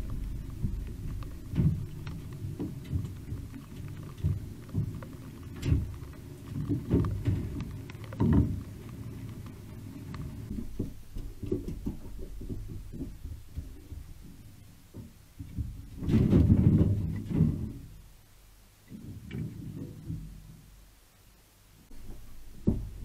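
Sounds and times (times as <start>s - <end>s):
animal feet thumping on metal roof: 0.0s - 8.6s, 10.5s - 18.0s, 21.9s - 23.0s.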